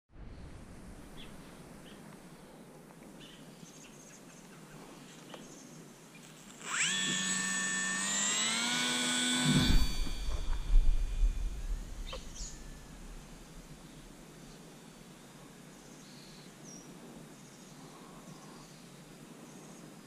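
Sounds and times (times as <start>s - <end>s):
faint outdoor background: 0.1s - 20.0s
low noise: 0.1s - 20.0s
electric motor and propeller whine: 6.2s - 14.4s.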